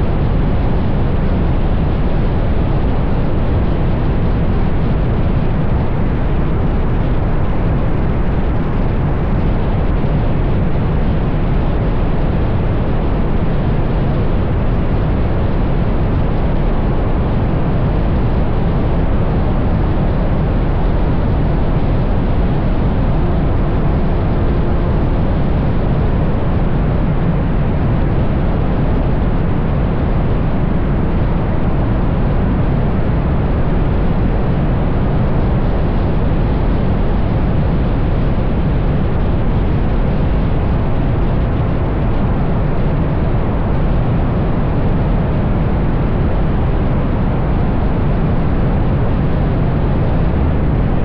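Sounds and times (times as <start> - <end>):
wind rush: 0.0 - 51.0.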